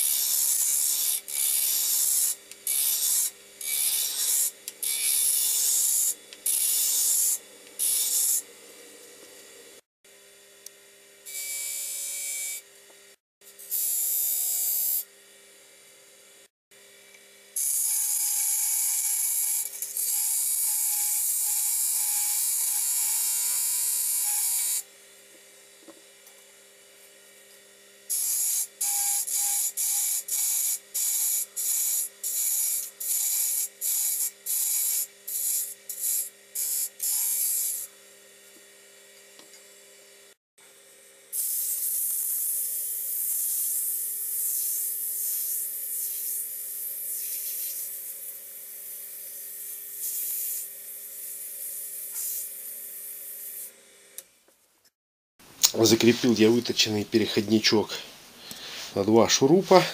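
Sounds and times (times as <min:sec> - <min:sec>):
sandpaper hissing on turning wood: 0:44.4 - 0:48.2, 0:50.0 - 0:53.7, 0:58.4 - 0:59.1.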